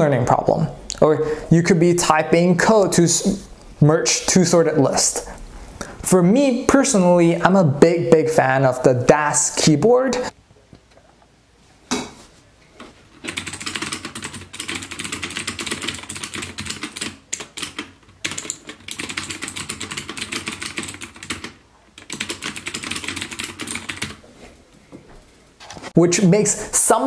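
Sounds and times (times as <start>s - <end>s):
fast typing on mechanical keyboard: 13.3s - 24.2s.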